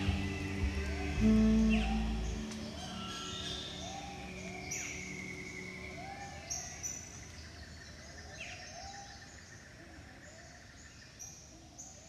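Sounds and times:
low upturned bird call: 0:00.0 - 0:07.1.

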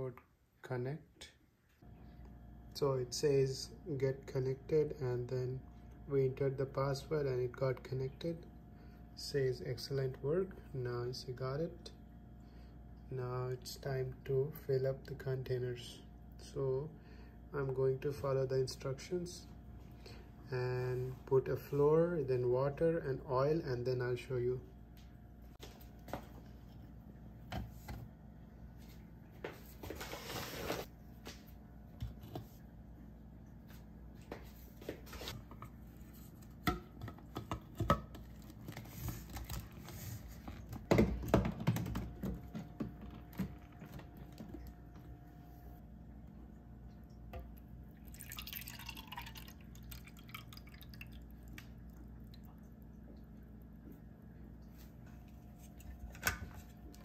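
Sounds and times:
water pouring into container: 0:47.9 - 0:51.7.

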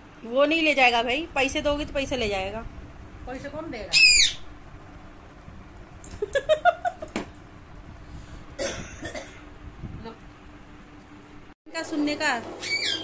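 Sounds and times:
harsh squawk: 0:03.9 - 0:04.5, 0:12.6 - 0:13.0
parakeet chattering calls: 0:03.9 - 0:04.5, 0:12.6 - 0:13.0
parakeet screeching: 0:03.9 - 0:04.5, 0:12.6 - 0:13.0.

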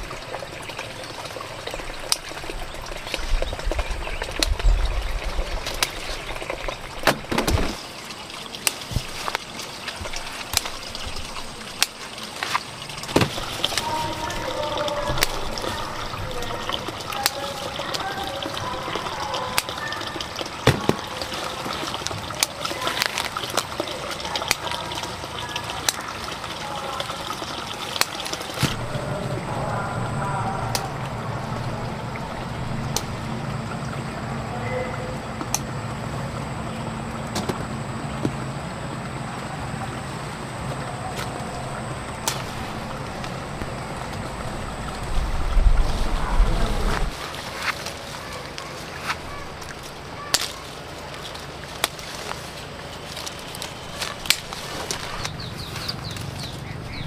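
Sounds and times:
low steady hum: 0:00.0 - 0:57.0
running water: 0:00.0 - 0:57.0.

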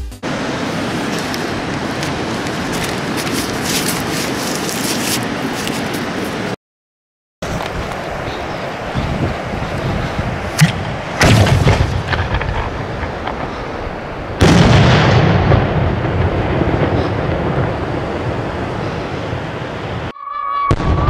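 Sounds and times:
rolling rumble: 0:07.4 - 0:20.1
firework mortar thump: 0:10.6 - 0:13.4.

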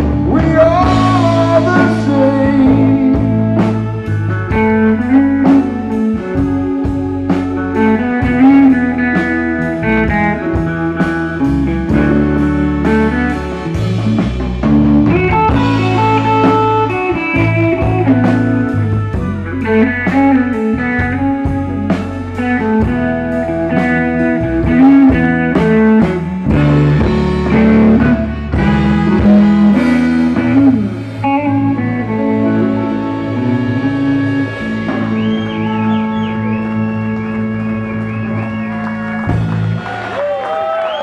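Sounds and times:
high wavering guitar notes: 0:00.0 - 0:40.4
blues band playing: 0:00.0 - 0:41.0.

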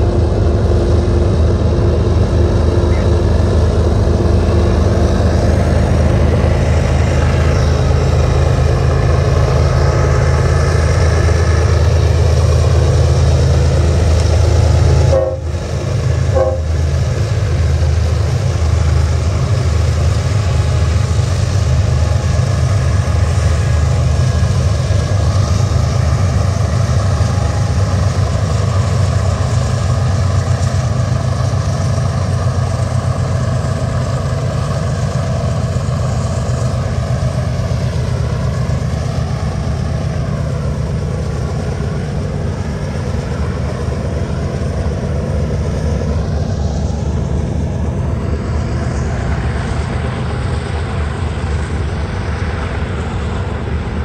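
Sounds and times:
diesel locomotives under heavy load: 0:00.0 - 0:54.0.

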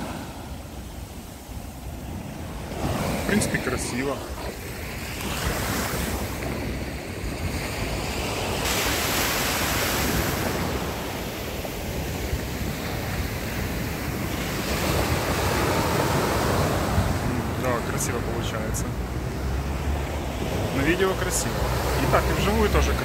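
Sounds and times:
wind rumbling on microphone: 0:00.0 - 0:18.0
sea waves washing onto beach: 0:00.0 - 0:23.0.

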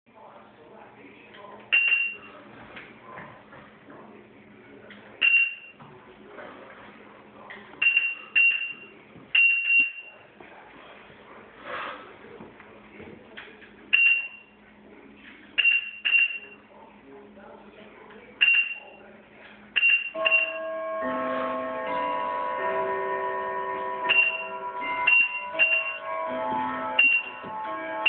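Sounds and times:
short high electronic beeps: 0:24.1 - 0:26.1, 0:27.0 - 0:27.4.

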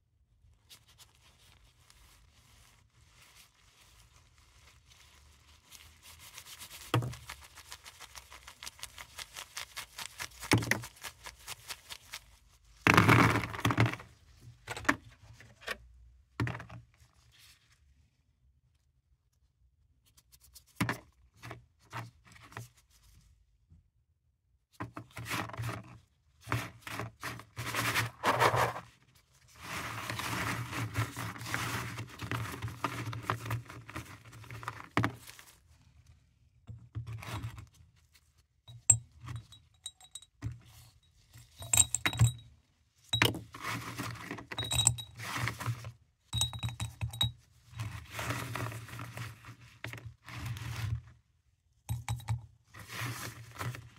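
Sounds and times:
tablets clinking into glass jar: 0:41.6 - 0:42.4, 0:44.6 - 0:45.2, 0:46.4 - 0:47.3.

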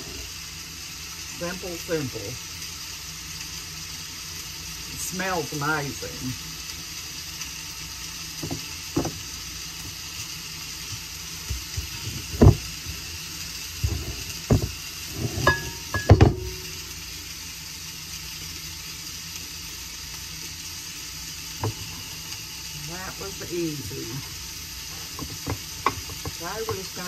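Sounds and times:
sausage sizzling in a frying pan: 0:00.0 - 0:27.0
dough thumping into pans: 0:13.8 - 0:16.6.

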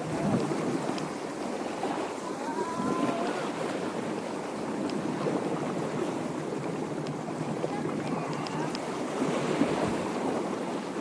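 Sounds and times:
waves washing against rocks: 0:00.0 - 0:11.0
wind: 0:00.0 - 0:11.0.

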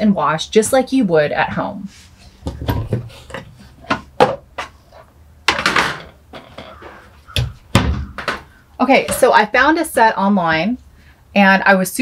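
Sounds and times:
plastic dishes clattering: 0:02.4 - 0:09.3.

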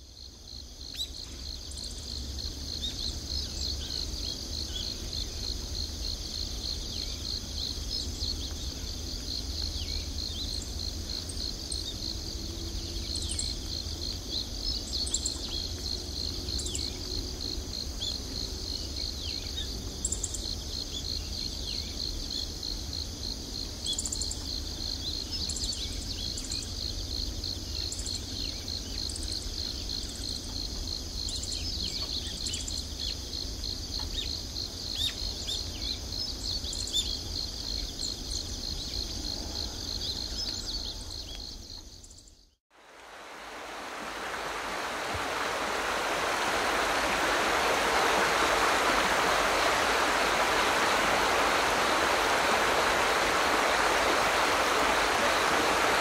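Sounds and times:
insects trilling: 0:00.0 - 0:56.0.

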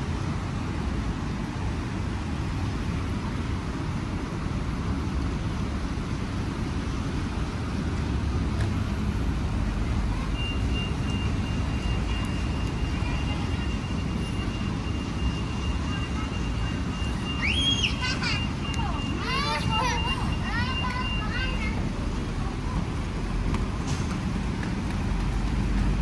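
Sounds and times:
city street traffic rumble: 0:00.0 - 0:26.0
faint high steady tone: 0:10.0 - 0:21.8.

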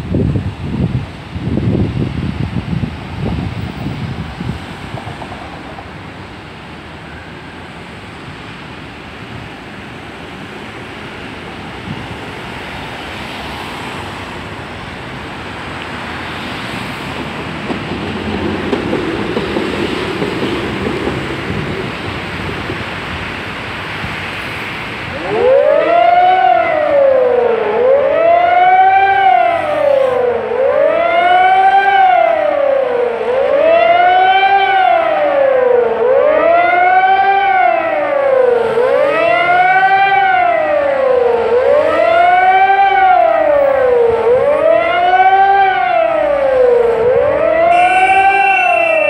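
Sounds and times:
road traffic noise: 0:00.0 - 0:49.0
warning siren wailing: 0:25.0 - 0:49.0.

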